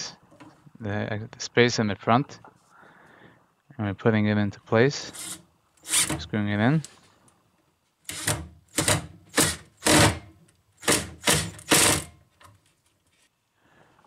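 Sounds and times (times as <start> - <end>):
drill driving screw into wood: 5.2 - 6.2, 8.1 - 12.2.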